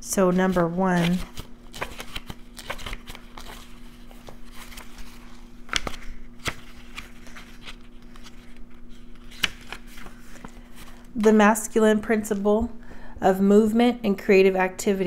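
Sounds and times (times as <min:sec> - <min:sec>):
steady low hum: 0:00.0 - 0:15.0
soft paper rustles: 0:00.5 - 0:11.1.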